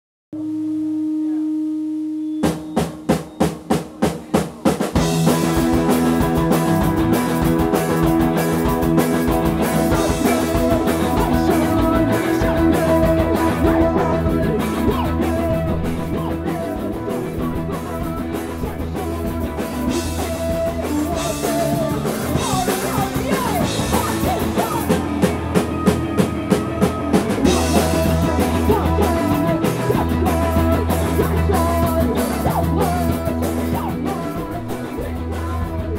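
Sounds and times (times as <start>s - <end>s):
punk rock band playing: 2.2s - 35.9s
woman singing: 10.0s - 25.2s, 25.8s - 35.9s.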